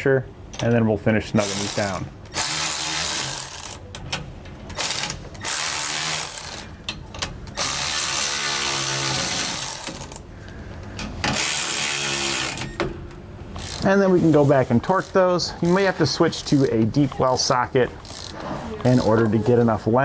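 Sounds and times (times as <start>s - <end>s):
cordless electric ratchet running: 7.6s - 10.2s, 11.3s - 12.7s, 13.6s - 13.8s.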